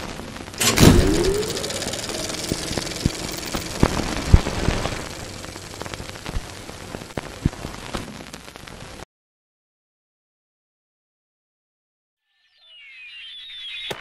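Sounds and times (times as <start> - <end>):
crackling static hiss: 0.0 - 0.6, 1.8 - 9.0.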